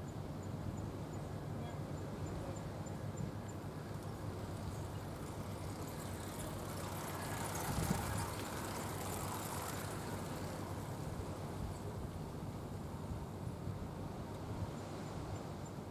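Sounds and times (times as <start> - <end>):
road traffic rumble: 0.9 - 15.5
vehicle passing: 4.1 - 11.8.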